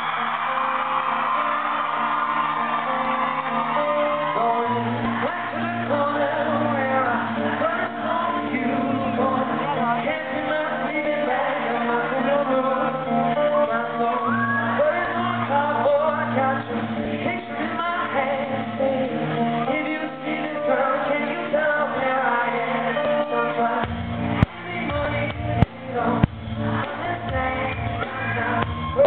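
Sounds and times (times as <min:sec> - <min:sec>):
live pop-rock band with singing: 0:00.0 - 0:29.0.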